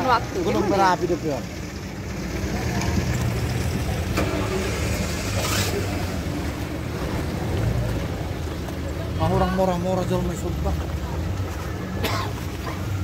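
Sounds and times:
jeep engine rumbling: 0:00.0 - 0:13.0.

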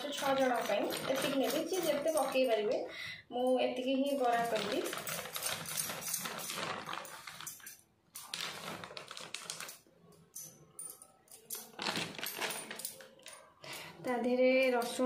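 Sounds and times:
plastic packet crinkling: 0:04.2 - 0:09.9, 0:11.7 - 0:13.3.

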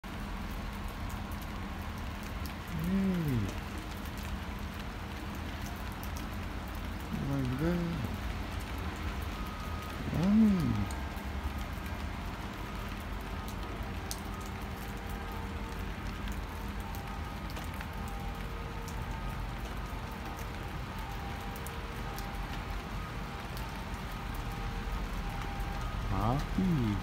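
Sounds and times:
raindrops ticking on surfaces: 0:00.0 - 0:27.0
steady rain falling: 0:00.0 - 0:27.0.

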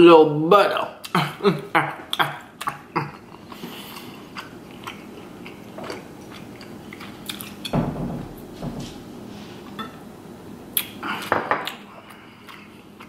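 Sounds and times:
chewing seafood: 0:02.1 - 0:07.7
deep thump: 0:07.8 - 0:09.0.

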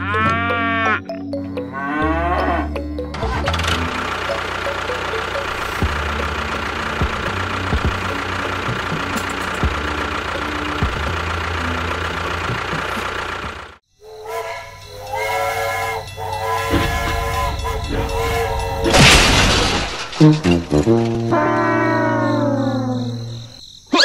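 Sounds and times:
sustained tones: 0:14.0 - 0:23.6.

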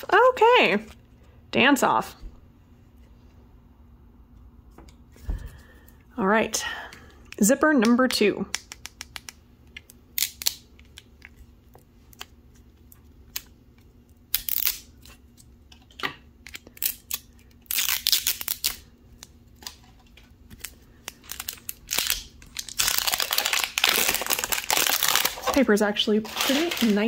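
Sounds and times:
paper wrapping tearing and crinkling: 0:16.6 - 0:18.8, 0:20.5 - 0:27.0.

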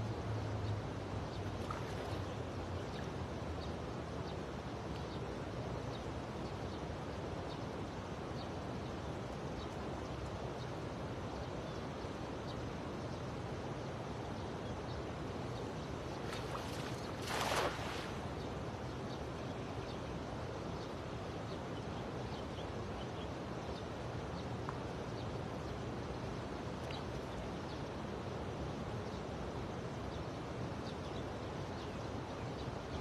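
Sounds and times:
rushing river water: 0:00.0 - 0:33.0.

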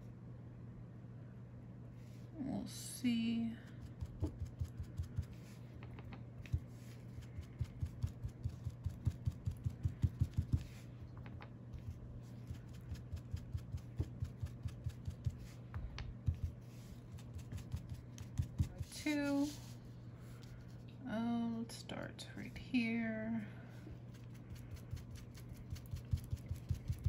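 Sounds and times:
faint low hum: 0:00.0 - 0:27.0
foam tool tapping on paper: 0:03.8 - 0:10.8, 0:11.8 - 0:16.6, 0:17.2 - 0:19.0, 0:24.8 - 0:27.0.

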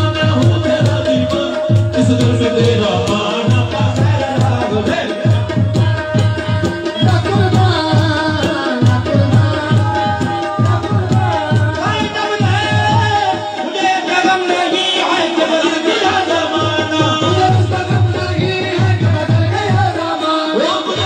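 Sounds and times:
hand drum beating: 0:00.0 - 0:13.4
harmonium: 0:00.0 - 0:21.0
people singing: 0:00.0 - 0:21.0.

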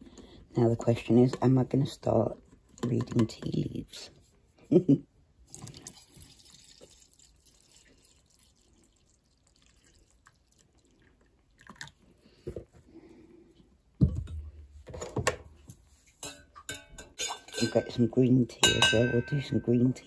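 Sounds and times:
tea pouring into mug: 0:05.5 - 0:12.0.

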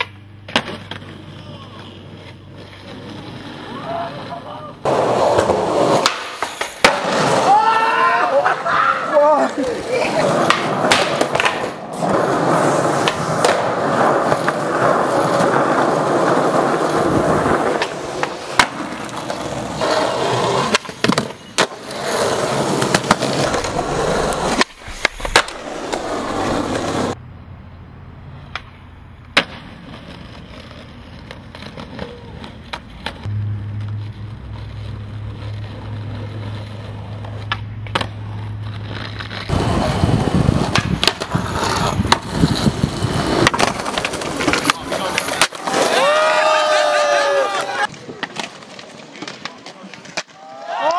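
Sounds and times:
skateboard wheels rolling on pavement: 0:00.0 - 0:50.9
skateboard clacks: 0:04.2 - 0:07.5, 0:09.4 - 0:27.2, 0:34.6 - 0:50.9.

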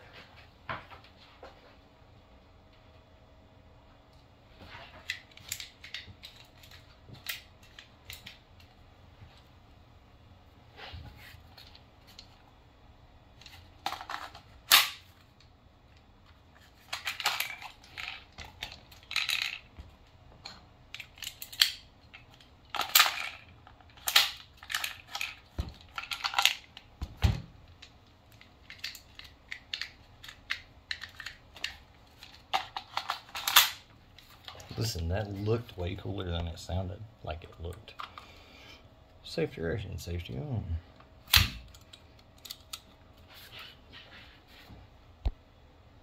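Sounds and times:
hard objects clicking and clattering: 0:13.4 - 0:15.2, 0:16.6 - 0:34.8.

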